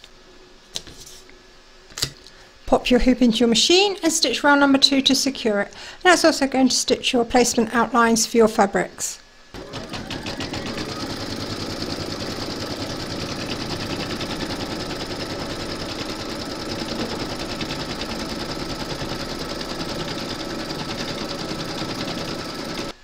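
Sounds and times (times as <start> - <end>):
embroidery machine stitching: 9.6 - 23.0.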